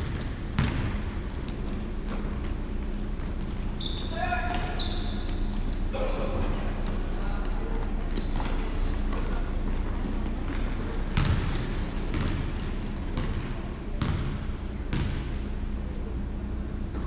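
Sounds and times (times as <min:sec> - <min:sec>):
basketball bouncing on hardwood: 0:00.0 - 0:01.0, 0:11.2 - 0:12.4, 0:14.0 - 0:14.3
sneaker squeaks: 0:00.0 - 0:09.4, 0:10.5 - 0:15.3
steady low hum: 0:00.0 - 0:17.0.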